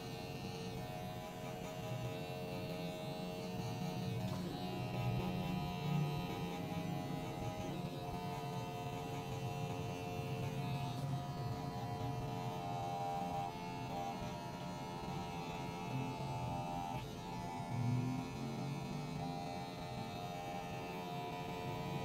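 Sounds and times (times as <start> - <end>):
electric hair clipper buzzing: 0.0 - 22.0.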